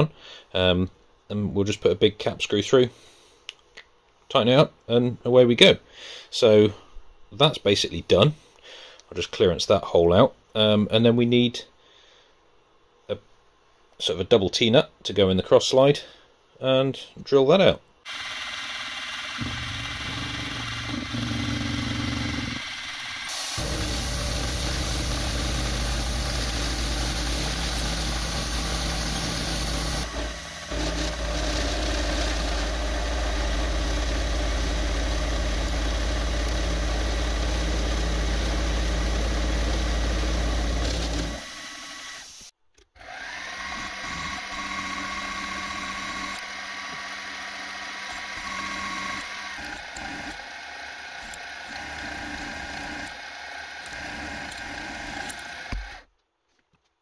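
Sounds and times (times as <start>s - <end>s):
drill whine boring metal: 18.1s - 42.4s, 43.0s - 56.0s
milling machine cutting metal: 18.1s - 42.4s, 43.0s - 56.0s.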